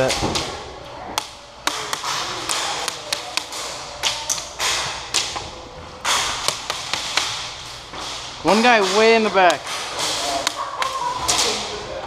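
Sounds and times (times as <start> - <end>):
pellets striking plywood: 6.0 - 10.6.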